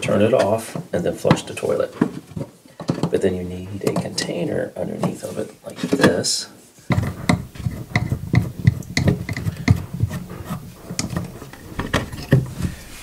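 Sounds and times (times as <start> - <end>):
wrench knocking on metal nut: 6.9 - 10.0.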